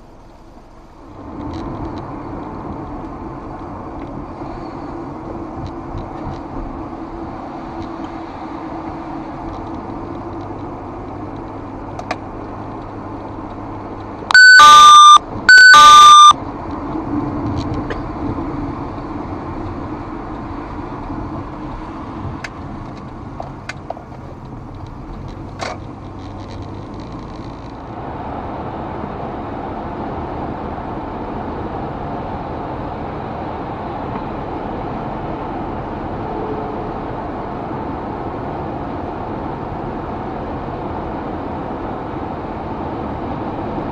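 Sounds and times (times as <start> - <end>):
road and engine noise in car: 0.0 - 43.9
loud pitched beeps: 14.3 - 16.4.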